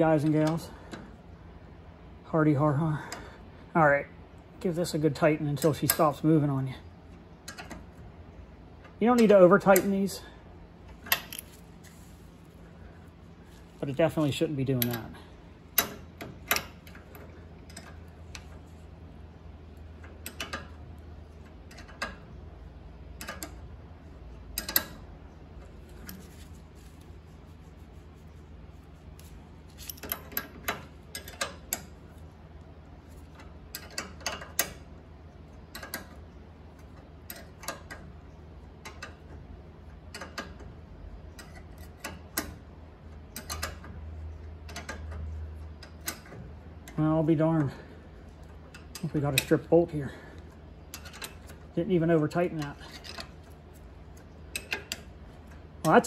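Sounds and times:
steady low hum: 0:00.0 - 0:56.0
wrench clicking against metal: 0:24.5 - 0:25.0, 0:43.4 - 0:43.9.

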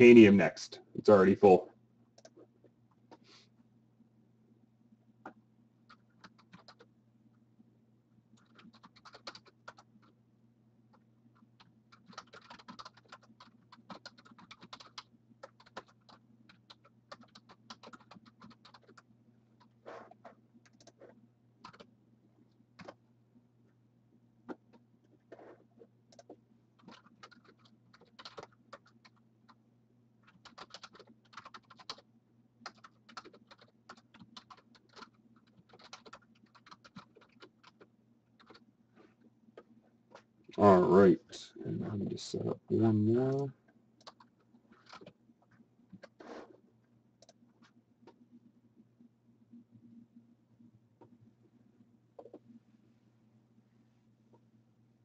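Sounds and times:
low electrical hum: 0:00.0 - 0:55.0
typing on computer keyboard: 0:05.9 - 0:06.9, 0:08.4 - 0:10.2, 0:10.9 - 0:19.7, 0:20.6 - 0:21.0, 0:21.6 - 0:21.9, 0:22.8 - 0:23.0, 0:26.1 - 0:29.6, 0:30.2 - 0:32.0, 0:32.6 - 0:38.6, 0:44.0 - 0:45.2.

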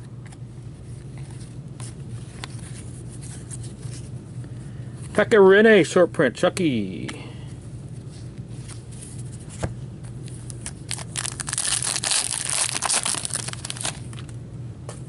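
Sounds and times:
foil wrapper crinkling: 0:10.3 - 0:14.4.

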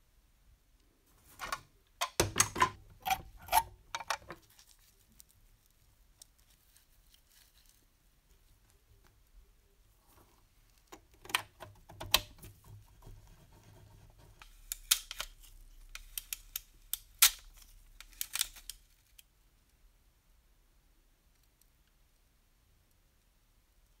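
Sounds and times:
metal clicks and knocks: 0:01.4 - 0:04.4.

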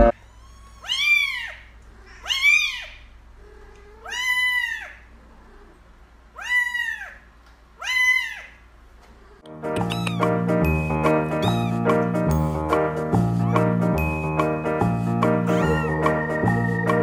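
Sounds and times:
kitten meowing: 0:00.0 - 0:03.1, 0:03.9 - 0:05.0, 0:06.4 - 0:07.2, 0:07.8 - 0:08.6, 0:09.8 - 0:10.4, 0:11.3 - 0:12.0, 0:13.4 - 0:13.8, 0:15.4 - 0:16.2.

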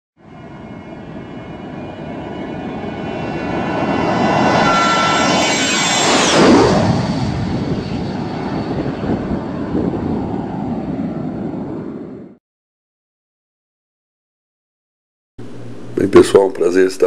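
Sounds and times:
steady noisy drone: 0:15.4 - 0:17.0.

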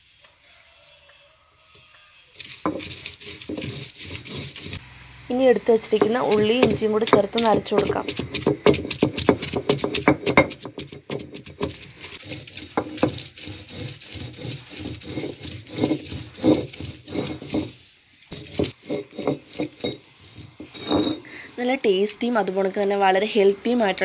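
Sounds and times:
stone roller grinding on stone: 0:02.3 - 0:21.8.

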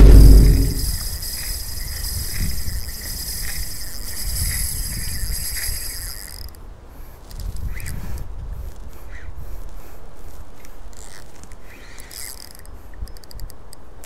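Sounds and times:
fishing reel drag buzzing: 0:00.0 - 0:08.2, 0:11.0 - 0:13.6.

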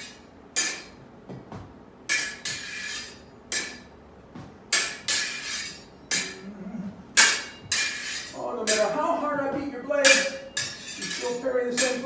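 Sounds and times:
sword blades clashing: 0:00.0 - 0:01.0, 0:02.1 - 0:03.9, 0:04.7 - 0:06.5, 0:07.2 - 0:09.1, 0:10.0 - 0:12.0.

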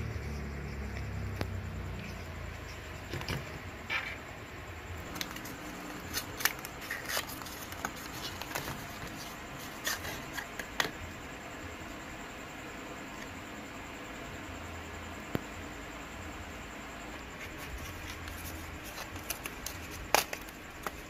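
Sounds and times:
cardboard boxes crinkling and scraping: 0:05.1 - 0:10.7, 0:17.3 - 0:21.0.

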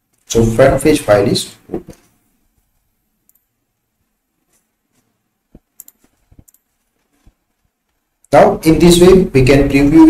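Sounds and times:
faint computer mouse clicks: 0:05.6 - 0:06.7.

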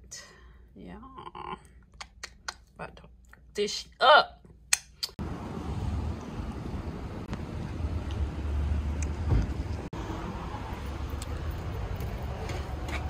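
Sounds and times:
road traffic rumble: 0:05.2 - 0:13.0.

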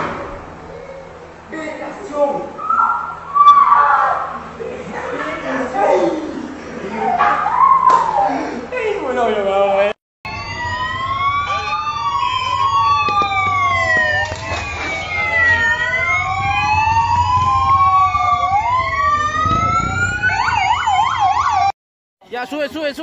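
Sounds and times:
police sirens wailing: 0:02.6 - 0:04.6, 0:07.0 - 0:08.4, 0:10.3 - 0:21.7
low engine rumble: 0:10.3 - 0:21.0.

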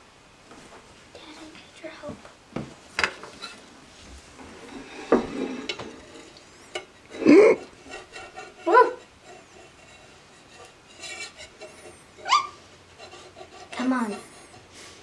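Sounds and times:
batter sizzling: 0:03.2 - 0:15.0
metal spatula scraping griddle: 0:03.4 - 0:03.6, 0:04.4 - 0:15.0.

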